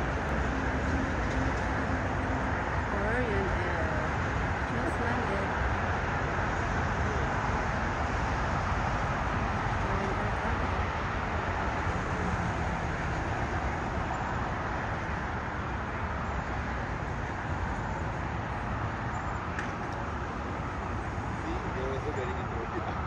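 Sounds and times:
distant jet engines rumbling: 0.0s - 23.0s.

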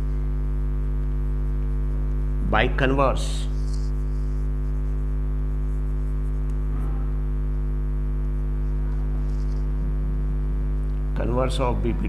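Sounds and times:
electrical mains hum: 0.0s - 12.0s
chalk scratching on blackboard: 3.4s - 6.6s, 8.8s - 9.8s.

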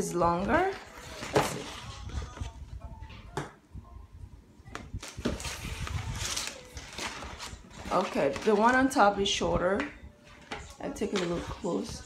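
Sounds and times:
plastic packaging rustling: 0.3s - 2.6s, 5.0s - 9.3s.

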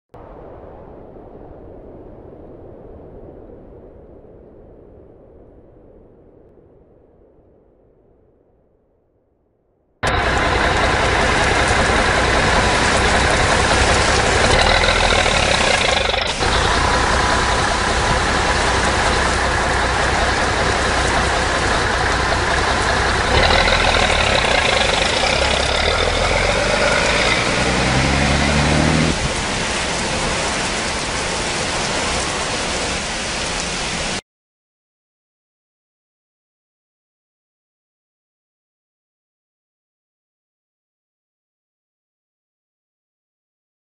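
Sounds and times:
steady rain: 10.0s - 34.2s
trolley bus engine: 10.0s - 34.2s.

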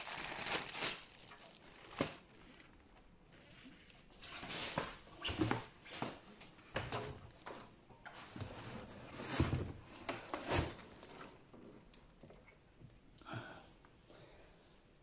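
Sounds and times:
plastic bag crinkling: 0.0s - 4.0s, 9.9s - 12.3s
rustling of cardboard and foam: 8.2s - 11.7s.

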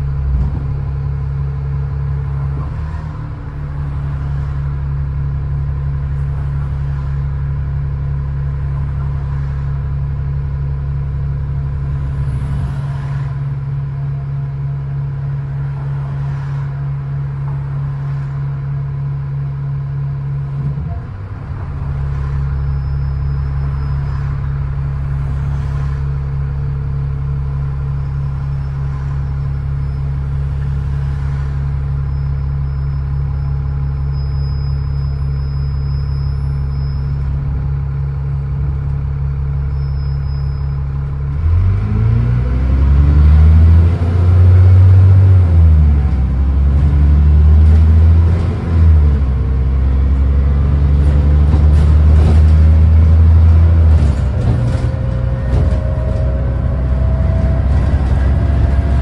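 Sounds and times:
bus engine accelerating: 0.0s - 59.0s
rising whine: 47.6s - 59.0s.

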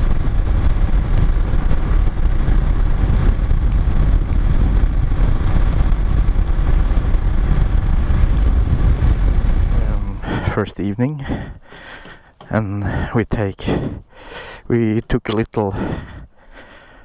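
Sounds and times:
motorcycle riding on wet road: 0.0s - 10.8s
wind buffeting microphone: 0.0s - 16.8s.

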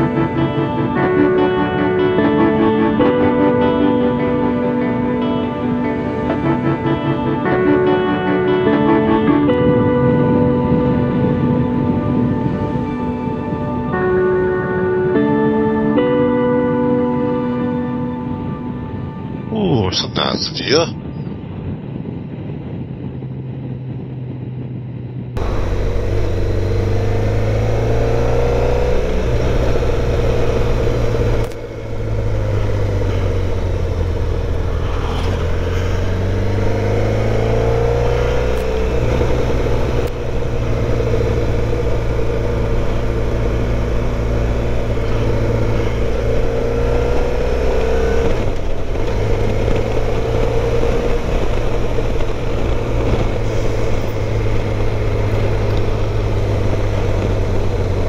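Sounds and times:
wind noise: 4.2s - 16.0s, 20.9s - 58.0s
motorcycle engine revving: 22.3s - 58.0s.

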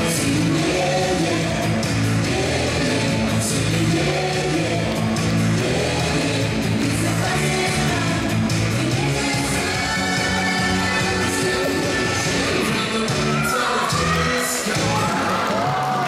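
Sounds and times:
loud rock music with singing: 0.0s - 16.0s.

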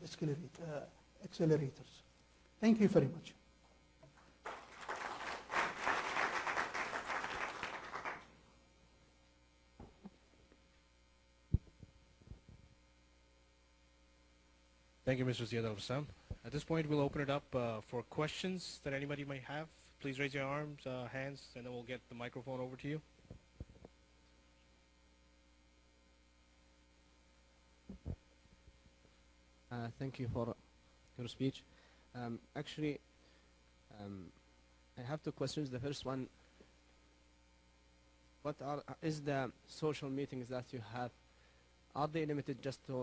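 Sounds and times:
low steady hum: 0.0s - 43.0s
audience applauding: 4.4s - 8.3s.

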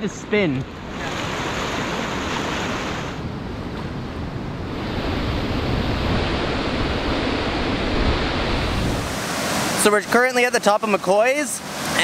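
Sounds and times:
rushing river water: 0.6s - 3.2s, 5.9s - 12.0s
wind on microphone: 0.7s - 9.5s.

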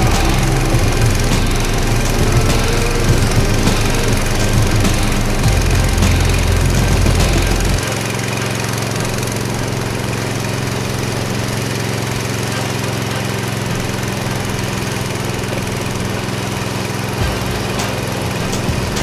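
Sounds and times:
small gasoline engine running: 0.0s - 19.0s.

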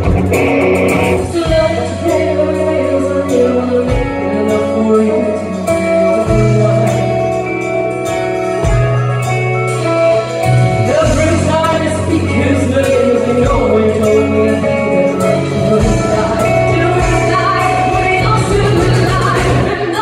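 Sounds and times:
live rock band with electric guitar: 0.0s - 20.0s
woman singing: 1.2s - 7.8s, 10.9s - 20.0s.

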